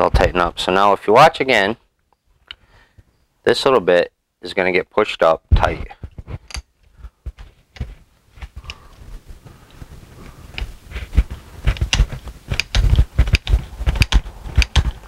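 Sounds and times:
tool clicks and knocks: 11.7 - 15.0.

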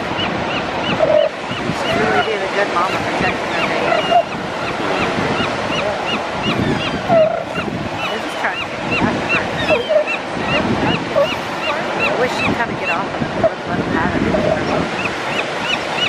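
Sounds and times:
surf washing: 0.0 - 16.0
lower bird squawks: 0.1 - 13.6.

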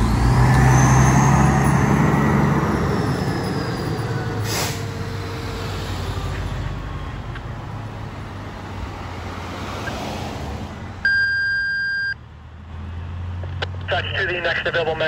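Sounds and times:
diesel engine rumbling: 0.0 - 15.0
road noise: 0.0 - 15.0
high radio alert tone: 13.9 - 15.0.

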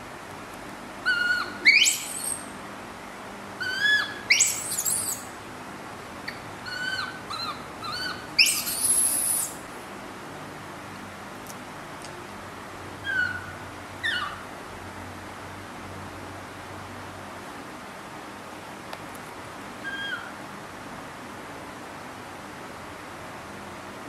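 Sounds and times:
baby monkey calling: 1.0 - 2.6, 3.6 - 5.4, 6.2 - 9.6, 13.0 - 14.5, 19.8 - 20.4
shrill scream: 3.6 - 5.3.

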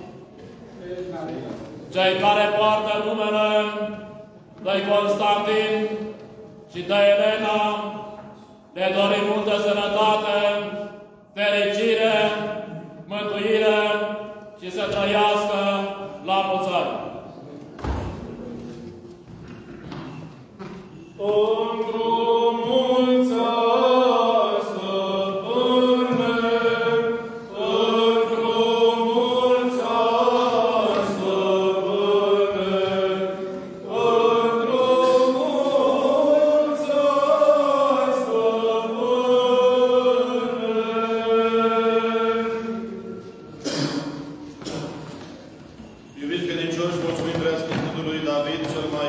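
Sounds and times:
voices chanting: 21.2 - 44.8.

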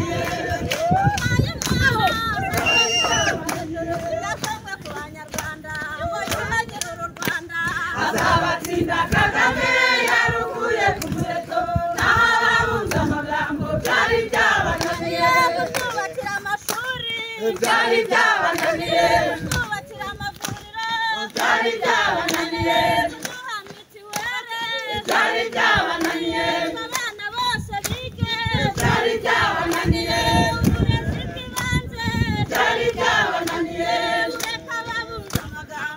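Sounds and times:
crowd singing unaccompanied: 0.0 - 35.9
handclaps: 0.0 - 35.9.

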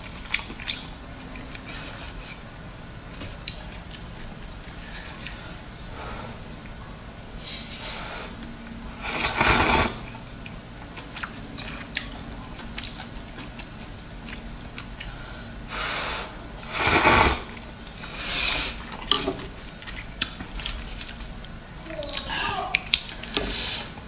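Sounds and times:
wet chewing clicks: 0.0 - 2.4, 10.0 - 15.2, 19.8 - 23.4
person slurping noodles: 8.9 - 10.1, 16.1 - 18.8.

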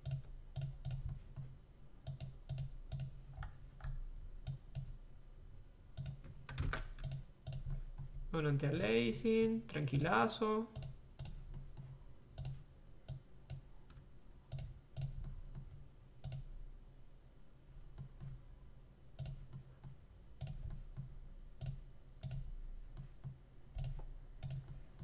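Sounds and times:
computer mouse clicking: 0.0 - 5.0, 6.0 - 8.1, 10.8 - 16.5, 19.2 - 25.0.

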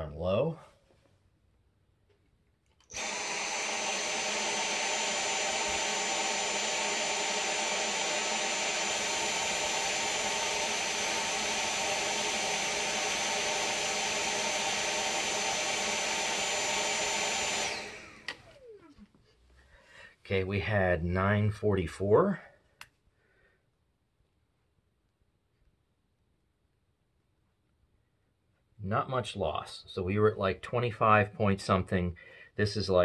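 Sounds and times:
stick vacuum motor whining: 2.7 - 19.2.

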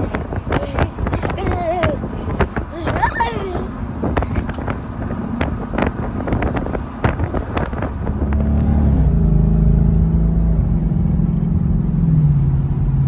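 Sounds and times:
wind noise on microphone: 0.0 - 9.4
car engine exhaust drone: 0.0 - 13.0.

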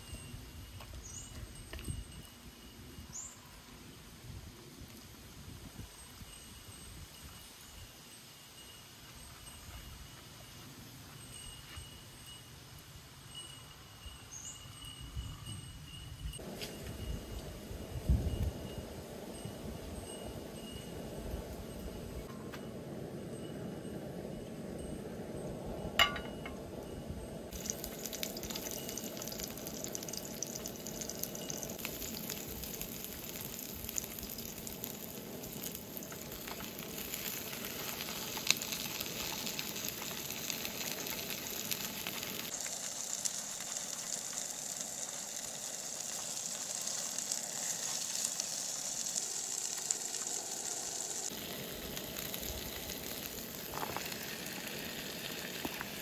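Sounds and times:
fish and onions sizzling in oil: 27.5 - 56.0.

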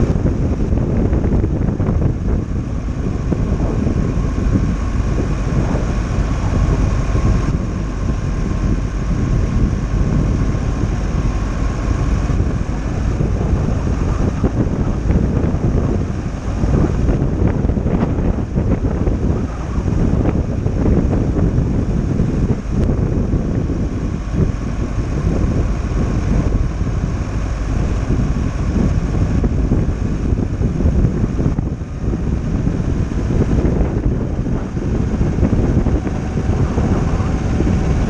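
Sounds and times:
faint steady whine: 0.0 - 38.0
van road and tyre noise: 0.0 - 38.0
wind buffeting microphone: 0.0 - 38.0.

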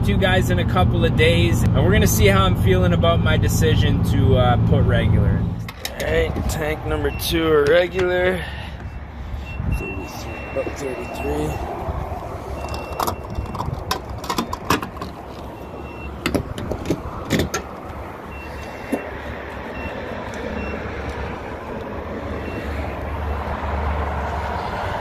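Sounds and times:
short high beeps: 9.5 - 11.6.

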